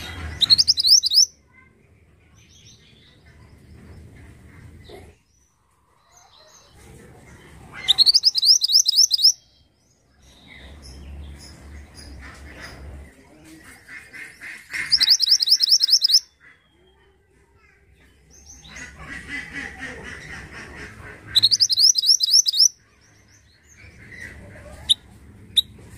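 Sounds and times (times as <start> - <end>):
bird singing rapid high notes: 0.0 - 1.3, 7.9 - 9.5, 14.8 - 16.3, 21.3 - 22.8
soft bird chirps: 0.0 - 1.7, 7.4 - 12.9, 14.4 - 17.3, 21.3 - 25.7.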